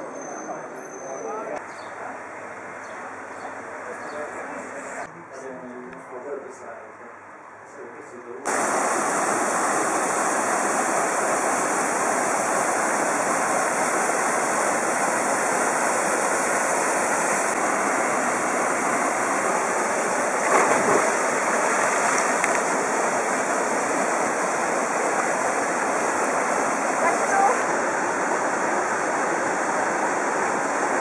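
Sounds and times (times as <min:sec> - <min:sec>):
waterfall rushing: 0:08.5 - 0:31.0.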